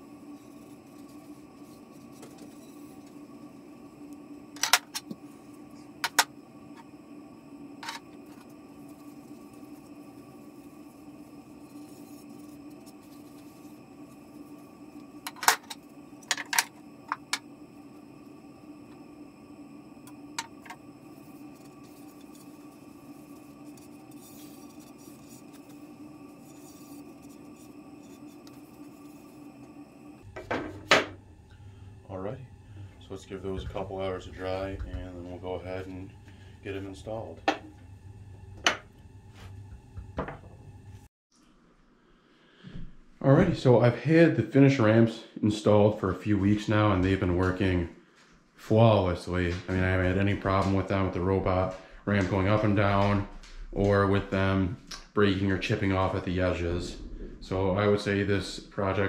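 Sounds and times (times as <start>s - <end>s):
faint steady tones: 0.0s - 41.1s
steady low hum: 0.0s - 59.0s.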